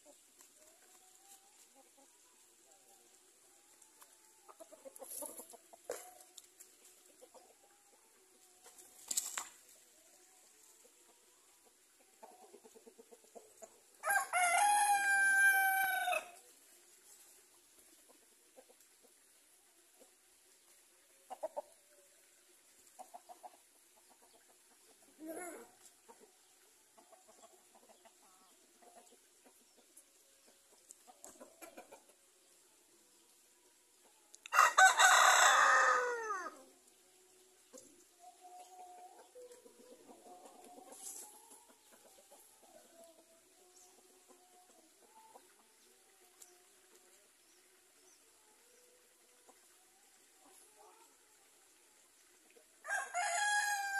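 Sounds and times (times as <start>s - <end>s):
rustles: 8.6s - 9.9s, 40.8s - 41.6s
rooster crowing: 14.0s - 16.4s, 34.5s - 36.6s, 52.8s - 53.9s.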